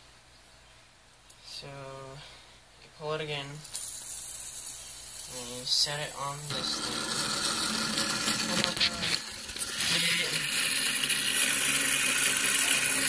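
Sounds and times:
toy gyroscope whirring: 0:03.7 - 0:13.0.

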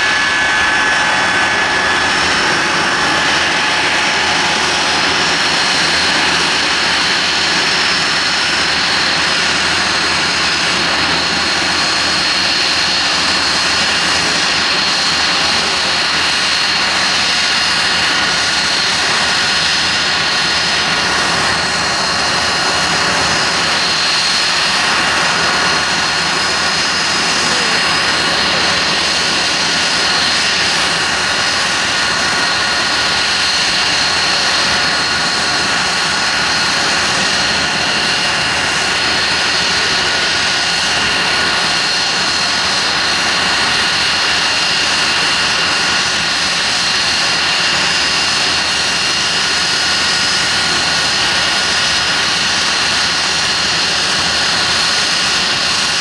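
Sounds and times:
jet engines whining: 0:00.0 - 0:56.0.

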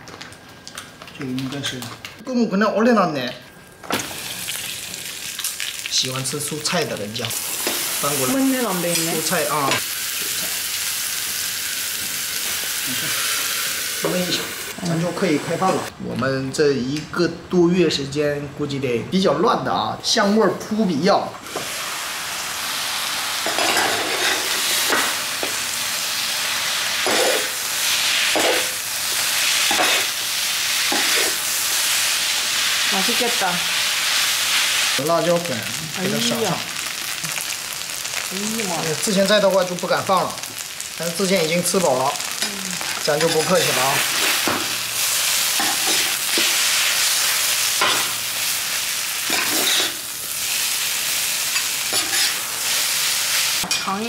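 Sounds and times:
noodles sizzling on a griddle: 0:03.6 - 0:15.9, 0:21.4 - 0:54.0
metal spatulas scraping griddle: 0:23.5 - 0:25.0, 0:51.9 - 0:52.4
metal spatulas scraping and clinking: 0:43.2 - 0:43.7, 0:51.6 - 0:52.4.

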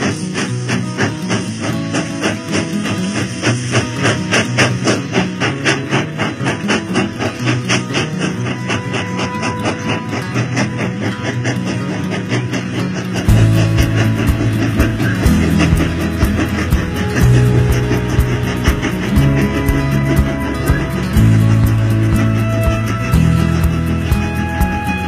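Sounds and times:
fast guitar-led music: 0:00.0 - 0:25.0.

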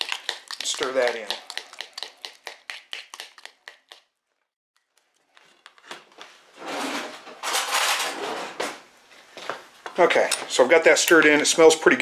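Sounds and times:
utensil tapping in bowl: 0:00.0 - 0:04.0
wet scraping and mixing: 0:00.0 - 0:06.3.

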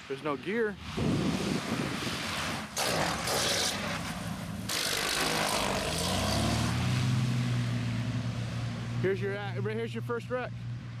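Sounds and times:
propellers scraping runway: 0:00.4 - 0:07.1.

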